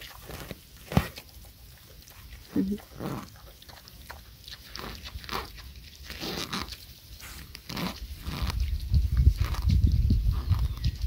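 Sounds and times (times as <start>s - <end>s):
dog sniffing: 3.2s - 8.7s.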